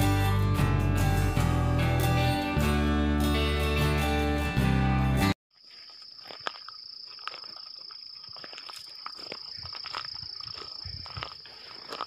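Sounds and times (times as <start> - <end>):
footsteps on a bush track: 5.5 - 12.0
high-pitched insect trill: 5.6 - 12.0.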